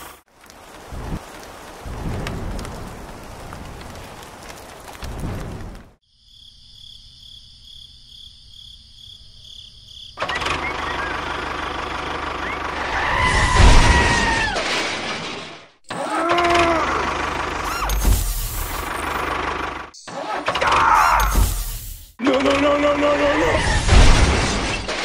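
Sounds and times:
rain: 0.0s - 6.0s, 16.1s - 19.9s
tractor engine running rough: 10.2s - 12.9s, 16.8s - 17.7s, 18.6s - 19.9s.

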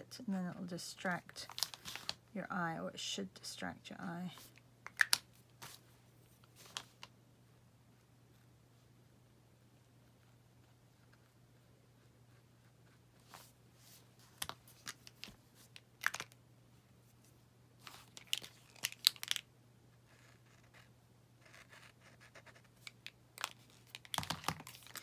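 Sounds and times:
faint low hum: 0.0s - 25.0s
markers clicking and tapping: 22.8s - 25.0s.

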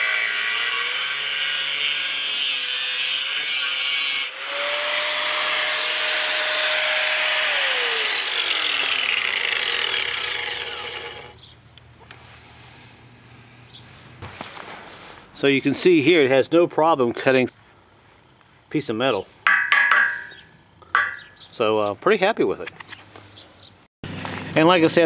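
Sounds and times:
angle grinder cutting steel: 0.0s - 11.4s.

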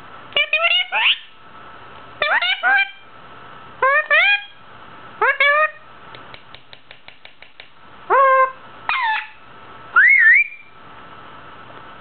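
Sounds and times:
parakeet calls: 0.4s - 1.4s, 2.2s - 3.1s, 3.8s - 4.6s, 5.2s - 5.8s, 8.1s - 9.4s, 10.0s - 10.7s
parakeet clicking: 6.2s - 7.8s.

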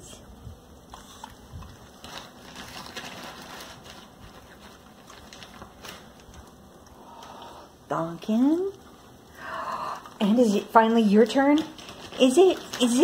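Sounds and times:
dogs chewing crunchy treats: 0.8s - 7.4s, 10.0s - 13.0s.

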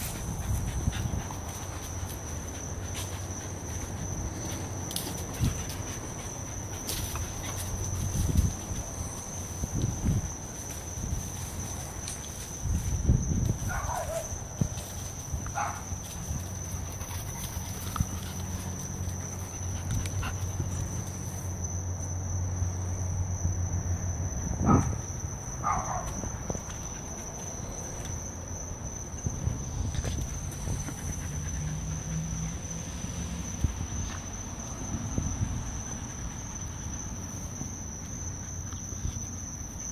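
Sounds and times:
dogs yelping: 13.7s - 14.4s, 15.5s - 16.0s, 30.4s - 32.7s.

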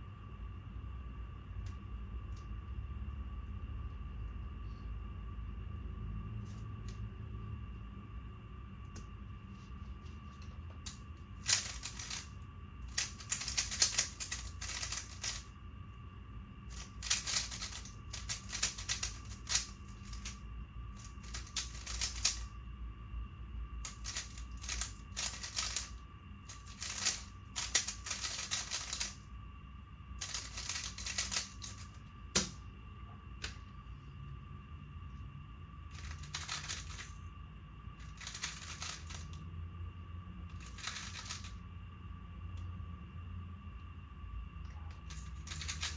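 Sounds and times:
puzzle cube clicking: 11.4s - 12.3s, 12.9s - 15.4s, 16.7s - 20.4s, 21.1s - 22.4s, 23.9s - 25.9s, 26.5s - 29.2s, 30.2s - 32.5s, 40.6s - 41.5s.

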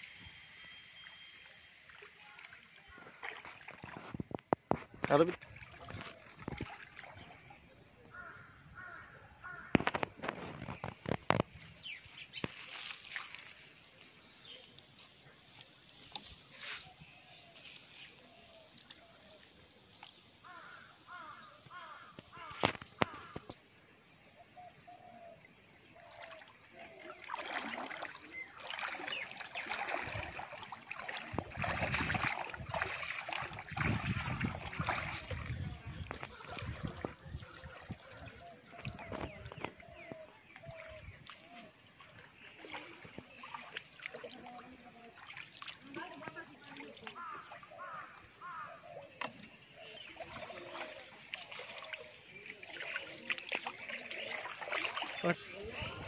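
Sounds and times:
short chirps: 0.0s - 2.7s
water splashing around wading legs: 0.0s - 23.7s, 25.6s - 56.0s.

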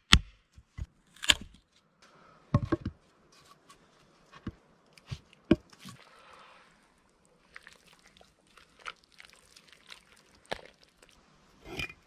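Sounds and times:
wooden knocks and taps: 2.6s - 3.0s.

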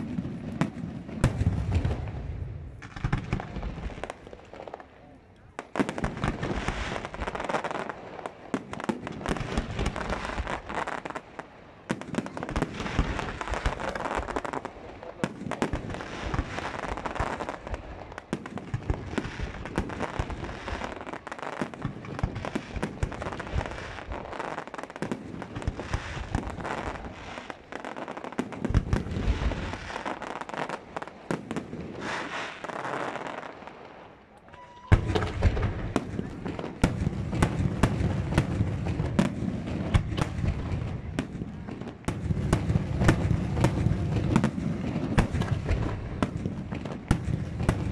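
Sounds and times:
heavy firework booms: 0.0s - 4.1s, 34.9s - 47.9s
fireworks bangs and crackling: 0.0s - 47.9s.

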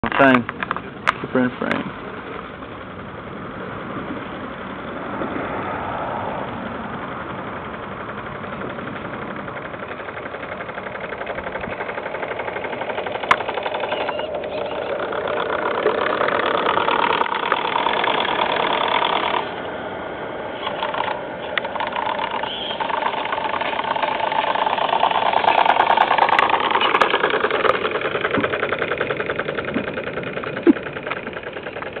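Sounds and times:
model steam engine running: 7.1s - 19.6s, 20.6s - 32.0s.

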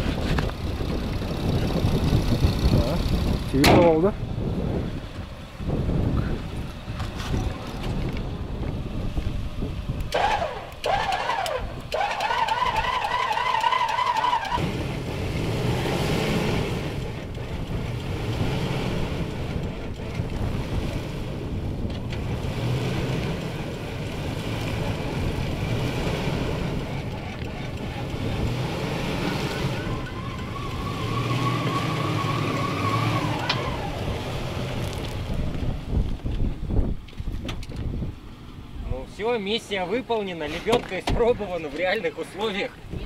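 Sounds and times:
car engine running: 0.0s - 30.8s
wind noise: 0.0s - 39.2s, 42.3s - 43.0s
vehicle winch whining: 10.0s - 15.7s, 16.6s - 35.6s.

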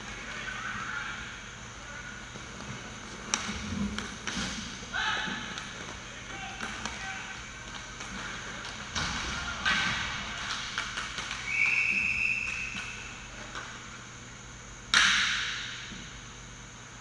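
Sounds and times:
hockey sticks and puck knocking: 2.3s - 11.8s
referee's whistle: 11.4s - 13.2s.

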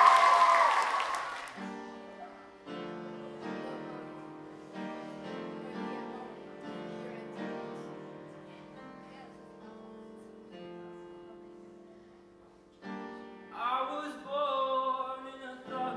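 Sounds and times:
crowd cheering: 0.0s - 2.4s
piano playing slow chords: 1.5s - 15.9s.

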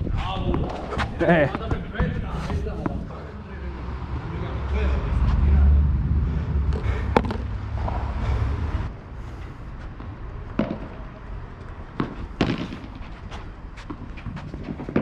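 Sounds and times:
wind rumble on microphone: 0.0s - 3.4s, 4.0s - 12.4s
rackets striking ball: 6.7s - 8.0s, 10.0s - 11.2s, 11.9s - 15.0s.

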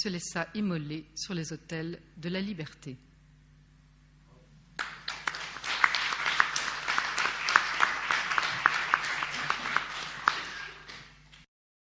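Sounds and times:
audience applause: 4.8s - 11.4s.

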